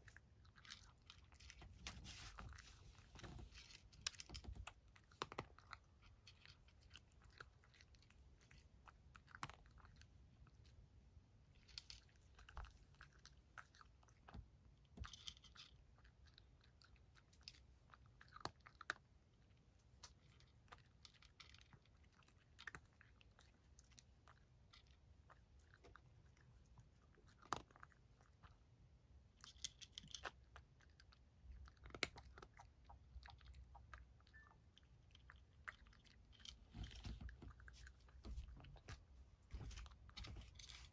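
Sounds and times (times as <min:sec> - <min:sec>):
cat crunching dry kibble: 0:00.0 - 0:40.9.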